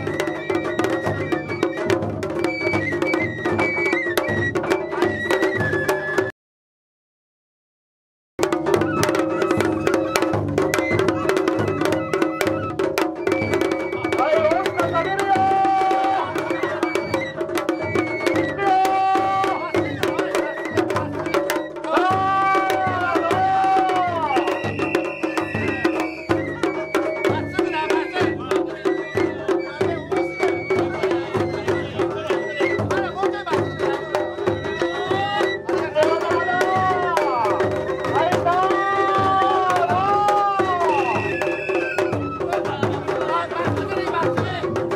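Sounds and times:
drums beaten in quick rhythm: 0.0s - 6.3s, 8.4s - 44.9s
high held melody line: 8.4s - 44.3s.

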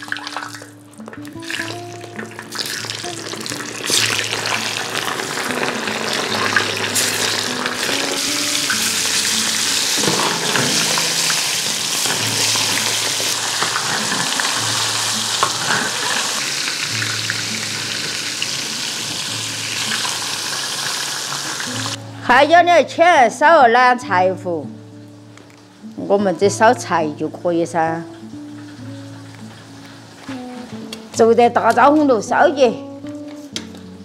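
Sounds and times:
food sizzling in hot oil: 0.0s - 22.0s, 27.6s - 31.0s.

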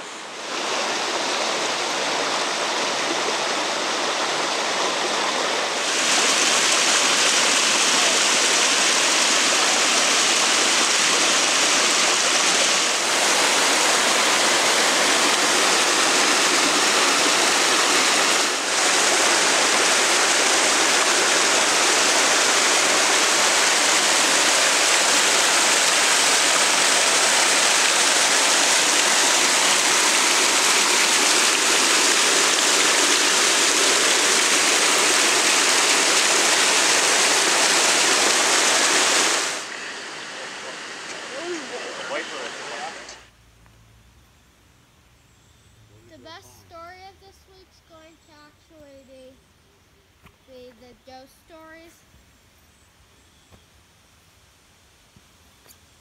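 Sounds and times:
waterfall rushing: 0.0s - 43.3s.

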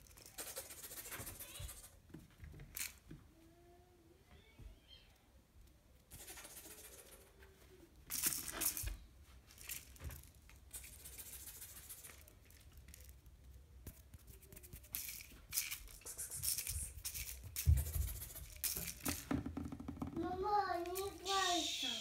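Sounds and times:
claw scratching: 15.8s - 19.0s.

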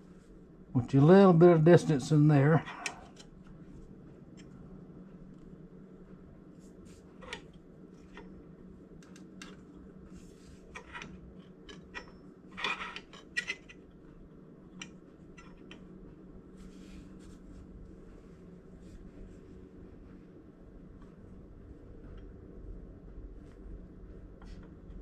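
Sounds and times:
steady low hum: 0.0s - 25.0s
metal tools clicking and scraping: 10.8s - 13.8s.

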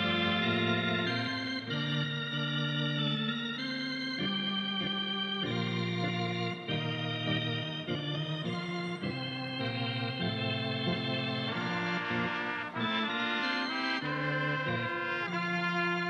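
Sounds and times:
organ playing held chords: 0.0s - 16.0s.

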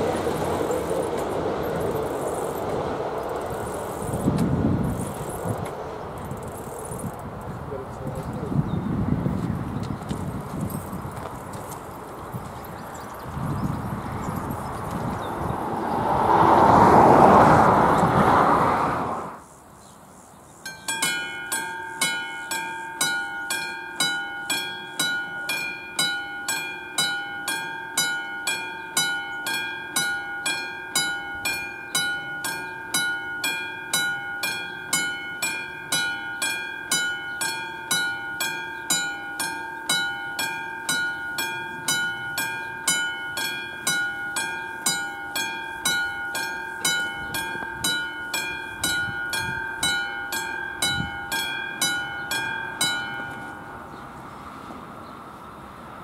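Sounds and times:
level crossing bell ringing: 20.7s - 53.9s.

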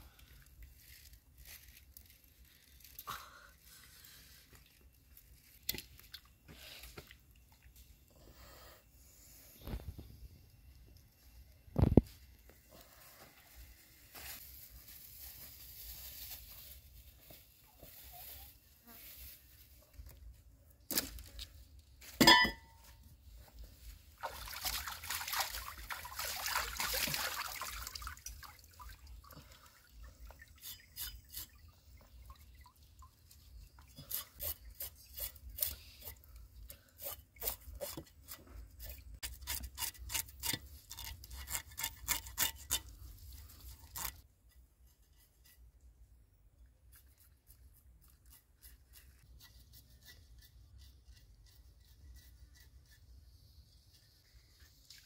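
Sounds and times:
rubbing strokes in water: 23.8s - 36.2s.

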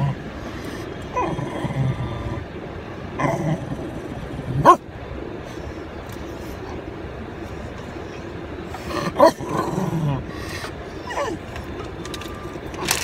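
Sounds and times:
dog whining and yelping: 8.0s - 13.0s.

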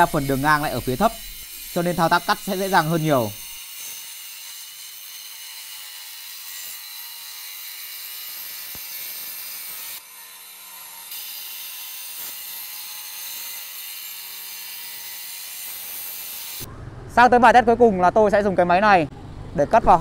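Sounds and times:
wall chaser grinding whine: 0.0s - 3.6s.

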